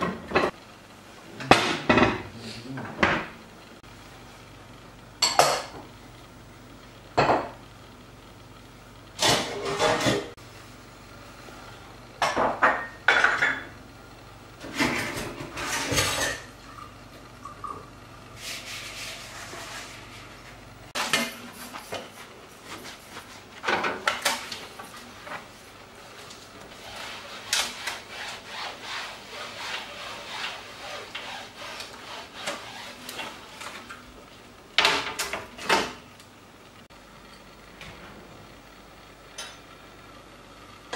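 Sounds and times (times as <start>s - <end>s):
pots and dishes clattering: 9.2s - 10.3s, 12.2s - 13.8s, 14.6s - 17.9s, 23.6s - 25.4s
cloth scrubbing ceramic tiles: 18.4s - 23.5s, 26.7s - 33.8s.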